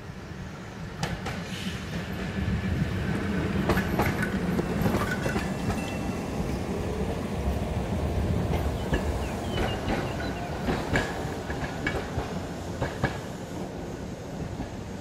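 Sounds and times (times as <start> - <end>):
streetcar rumbling on rails: 0.0 - 15.0
wheels clicking over rail joints: 3.6 - 6.1.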